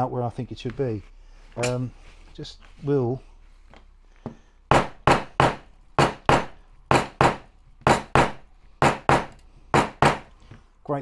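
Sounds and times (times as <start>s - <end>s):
hand hammer tapping metal: 4.3s - 10.3s.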